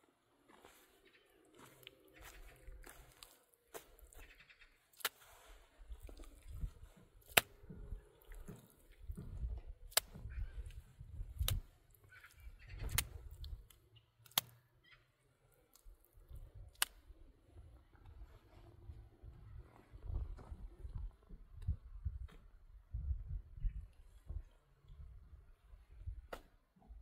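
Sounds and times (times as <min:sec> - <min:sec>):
sharp clicks: 0:12.8 - 0:14.6.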